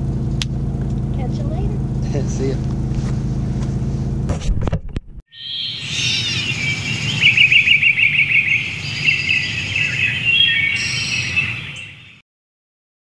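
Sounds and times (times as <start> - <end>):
birds chirping: 5.3 - 12.2
rapid bird trill: 5.3 - 12.2.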